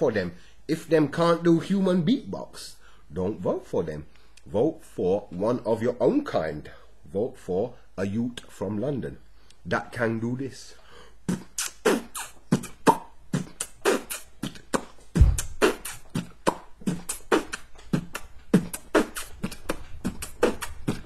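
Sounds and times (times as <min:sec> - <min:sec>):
man beatboxing: 0:11.3 - 0:21.0.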